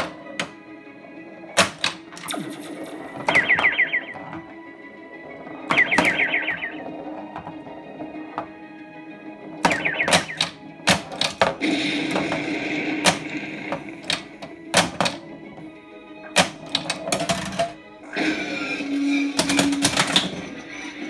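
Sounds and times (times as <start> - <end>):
pinball flippers clacking: 0.0 - 2.5, 3.1 - 17.8, 19.2 - 21.0
game music from speaker: 0.0 - 21.0
game sound effects: 1.6 - 8.6, 9.5 - 15.2.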